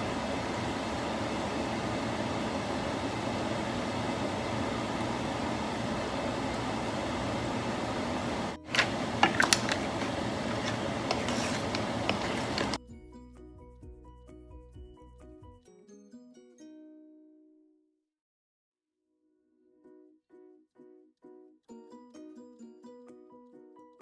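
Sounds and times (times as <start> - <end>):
fan hum and hiss: 0.0 - 12.8
wooden spatula scraping a pan: 8.7 - 12.8.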